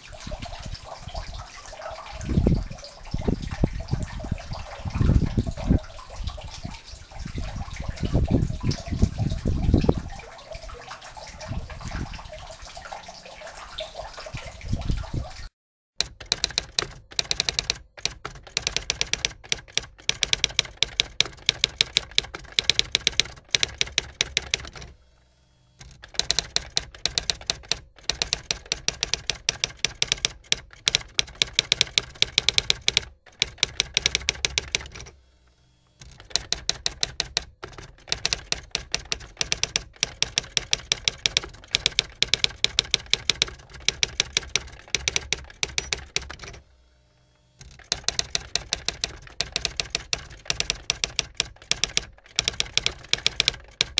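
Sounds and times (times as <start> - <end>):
typewriter keystroke clicks: 16.0 - 25.0, 25.8 - 35.1, 36.0 - 46.6, 47.6 - 53.9.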